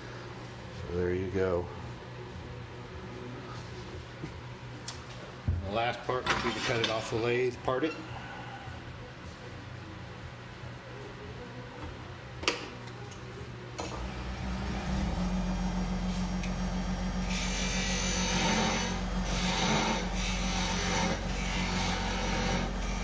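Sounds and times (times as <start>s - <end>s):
lathe motor humming: 13.9s - 23.0s.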